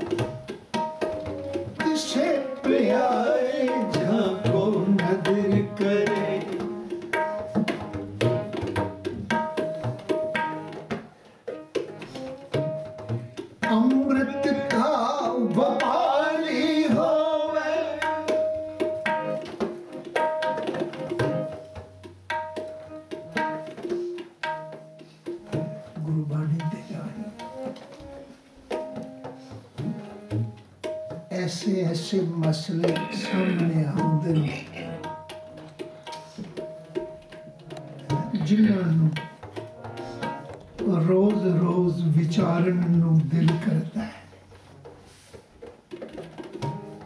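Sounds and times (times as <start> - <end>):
tabla drums playing: 0.0 - 47.0
man singing: 1.8 - 6.7, 13.7 - 18.3, 31.3 - 34.7, 40.8 - 44.1
harmonium and keyboard notes: 18.0 - 21.7.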